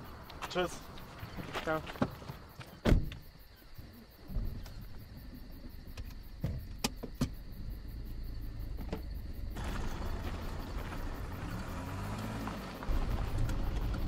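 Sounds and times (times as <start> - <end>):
car engine running low: 7.4 - 14.0.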